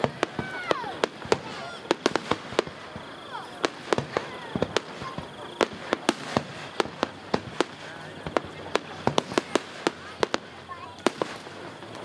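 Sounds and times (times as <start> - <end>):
firework shells bursting: 0.0 - 12.0.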